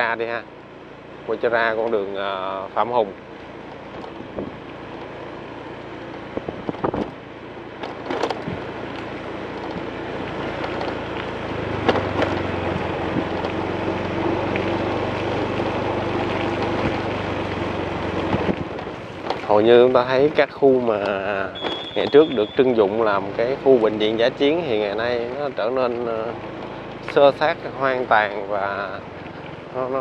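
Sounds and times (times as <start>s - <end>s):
vehicle engine running: 0.0s - 30.0s
wind noise on microphone: 4.1s - 4.6s, 6.3s - 7.2s, 8.0s - 8.7s, 11.9s - 13.5s, 18.2s - 19.1s.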